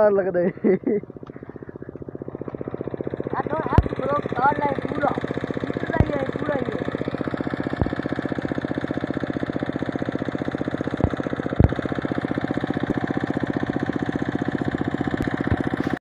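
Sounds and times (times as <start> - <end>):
diesel engine chugging: 0.0 - 16.0
sharp knocks: 11.0 - 11.8.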